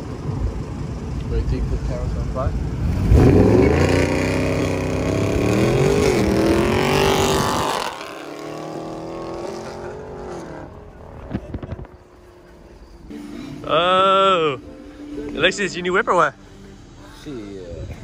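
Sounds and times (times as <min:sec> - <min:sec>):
car engine revving hard: 0:02.8 - 0:10.9.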